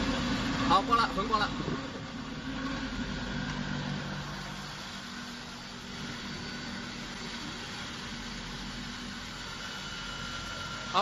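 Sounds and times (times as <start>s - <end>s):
mixing tank motor whirring: 0.0s - 11.0s.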